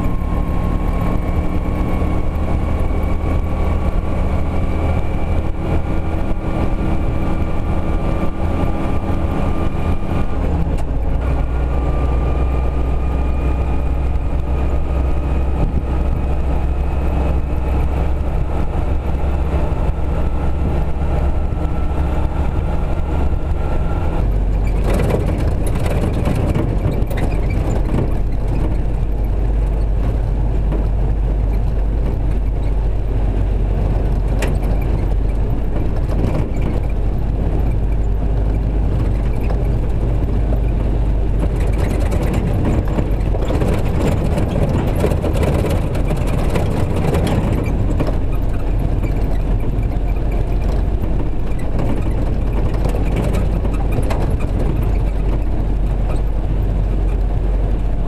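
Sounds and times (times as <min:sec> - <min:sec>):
car engine running with whine: 0:00.0 - 0:58.0
rattles and knocks: 0:24.2 - 0:32.8, 0:33.6 - 0:57.3.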